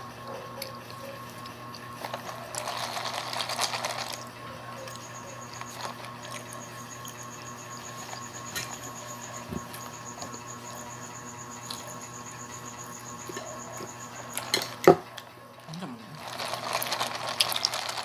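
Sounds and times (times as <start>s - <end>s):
plastic cup rustling: 2.0s - 4.3s, 5.5s - 6.4s, 15.7s - 18.0s
cricket chirping: 2.1s - 18.0s.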